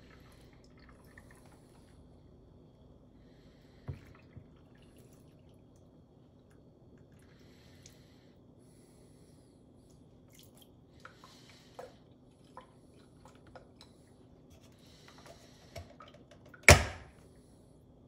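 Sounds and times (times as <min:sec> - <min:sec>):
coffee maker lid clacking shut: 0:16.7 - 0:17.1.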